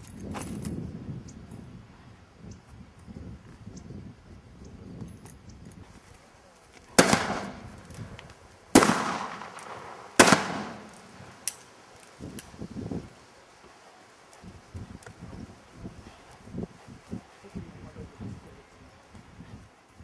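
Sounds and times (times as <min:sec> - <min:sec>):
gunshots: 0:07.0 - 0:07.8, 0:08.7 - 0:11.2.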